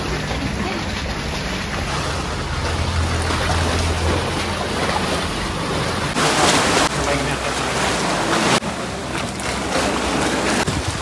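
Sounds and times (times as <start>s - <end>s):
sea wash: 0.0s - 11.0s
wind noise: 10.6s - 11.0s.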